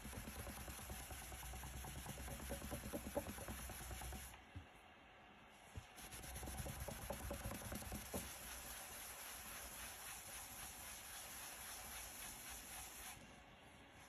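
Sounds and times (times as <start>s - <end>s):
pad rubbing wax into wood: 0.0s - 4.3s, 5.8s - 13.3s.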